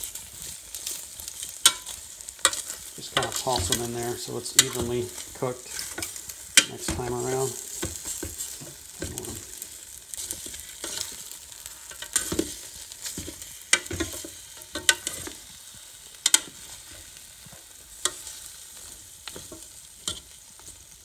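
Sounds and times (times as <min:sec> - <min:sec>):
chicken wings sizzling: 0:00.0 - 0:21.0
tongs clacking on metal basket: 0:00.9 - 0:09.6, 0:11.9 - 0:15.4.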